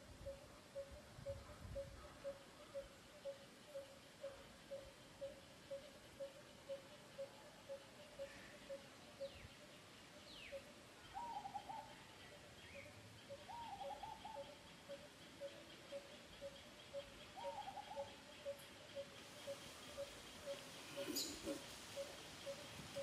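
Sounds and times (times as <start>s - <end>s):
bird song phrase: 0.3s - 23.0s
bird piping: 12.6s - 23.0s.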